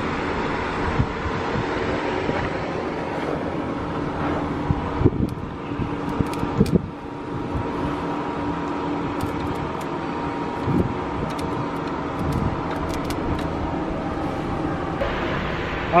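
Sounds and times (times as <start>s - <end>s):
engine idling: 0.0s - 16.0s
metallic cable clamp clicks: 11.3s - 13.5s.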